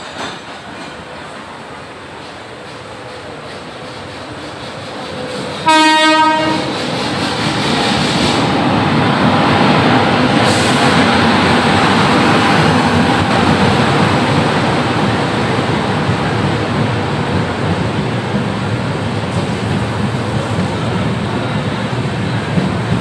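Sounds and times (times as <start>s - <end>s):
train wheels rumbling on rails: 0.0s - 23.0s
train horn blast: 5.6s - 6.7s.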